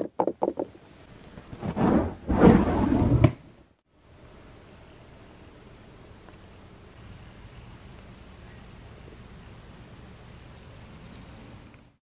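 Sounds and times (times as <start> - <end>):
steady background hiss: 3.3 - 12.0
faint high chirps: 7.6 - 9.0.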